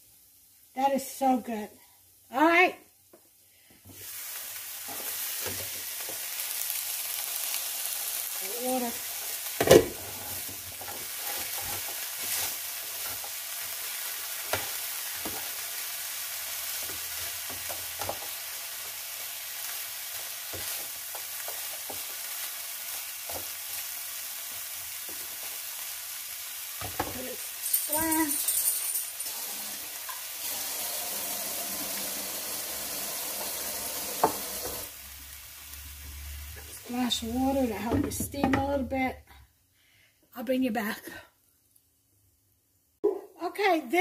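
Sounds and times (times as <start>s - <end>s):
broccoli sizzling in a frying pan: 0.0s - 38.8s
spatula scraping a pan: 10.0s - 13.3s.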